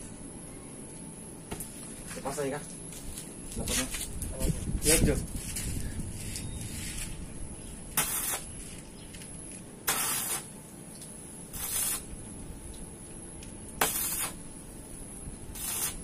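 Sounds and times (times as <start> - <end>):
arc welder bursts: 7.9 - 8.6, 9.8 - 10.7, 11.3 - 12.6, 13.7 - 16.0.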